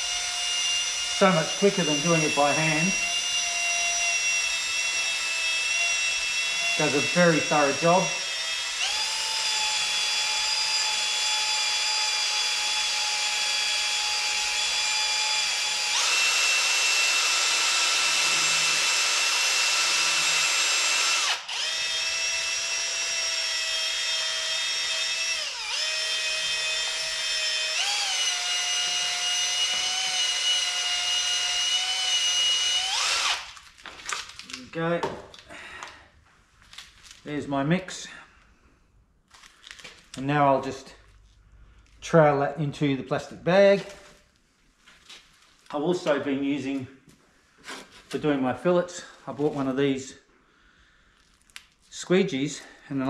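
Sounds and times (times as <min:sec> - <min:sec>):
drill motor whine: 0:00.0 - 0:33.5.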